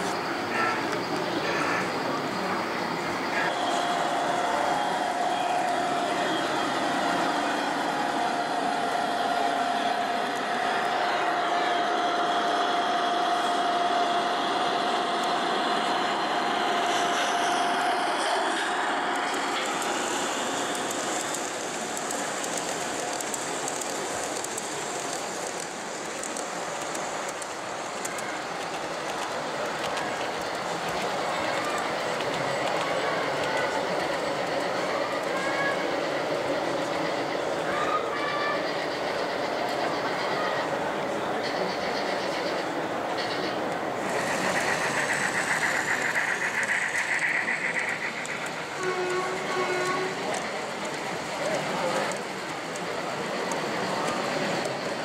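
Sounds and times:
high humming noise: 0:00.0 - 0:29.6
model train wheels clicking: 0:03.4 - 0:55.0.

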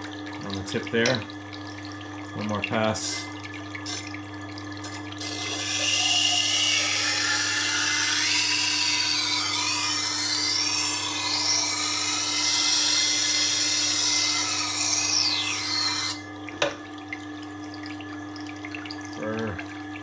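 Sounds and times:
motor hum: 0:00.0 - 0:20.0
knife grinding with squeals: 0:05.2 - 0:16.2.

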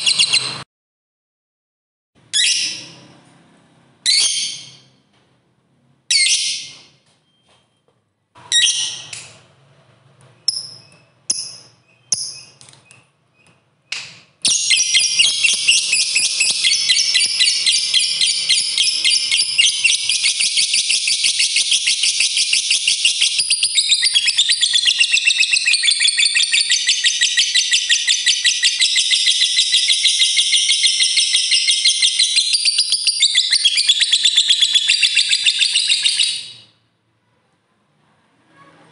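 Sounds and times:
lovebird shrill calls: 0:14.5 - 0:36.5
lovebird chattering trill: 0:14.5 - 0:36.6.

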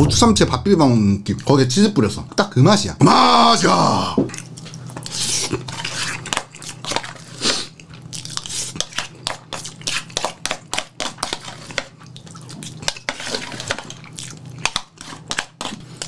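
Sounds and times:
chewing: 0:04.3 - 0:16.0.

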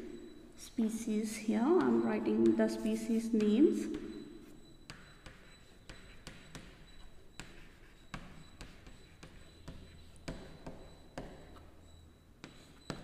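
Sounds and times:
chalk tapping on blackboard: 0:04.9 - 0:11.6, 0:12.4 - 0:13.0
chalk scratching: 0:05.2 - 0:10.2.

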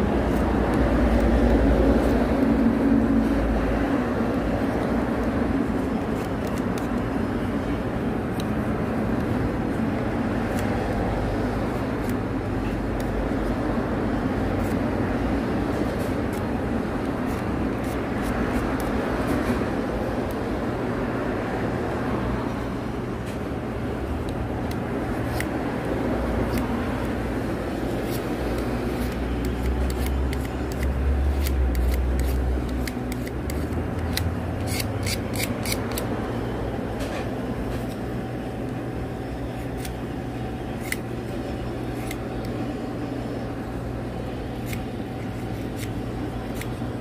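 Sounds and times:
steady low hum: 0:00.0 - 0:47.0
knife blade scraping wood: 0:27.9 - 0:36.1.

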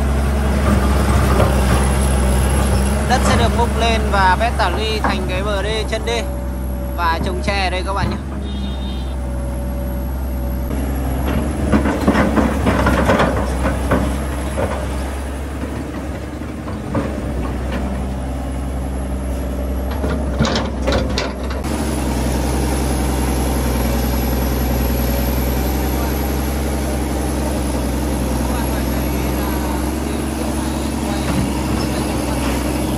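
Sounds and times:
excavator diesel engine: 0:00.0 - 0:32.9
clanks and scraping: 0:10.7 - 0:18.3, 0:19.4 - 0:21.7.

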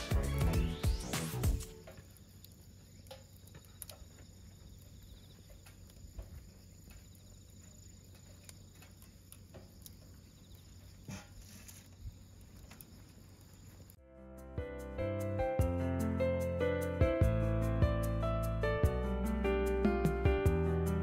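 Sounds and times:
fire pops and crackles: 0:00.0 - 0:14.0.

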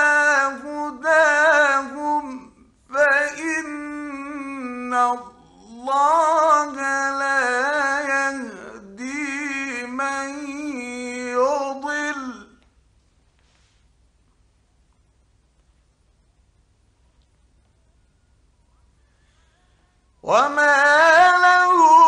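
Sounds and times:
man chanting melodic recitation: 0:00.0 - 0:12.6, 0:20.2 - 0:22.0.

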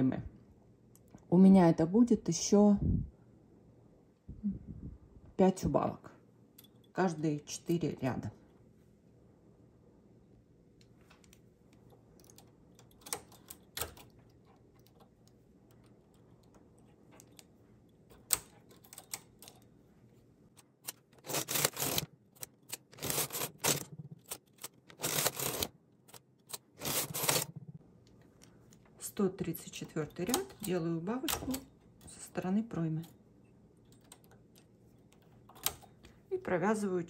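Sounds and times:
knitting machine carriage rattling: 0:11.9 - 0:19.8, 0:20.6 - 0:27.8.

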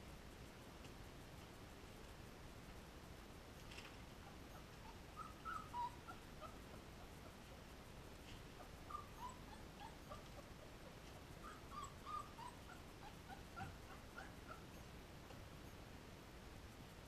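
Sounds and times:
puppies whimpering: 0:04.2 - 0:07.4, 0:08.6 - 0:14.8.

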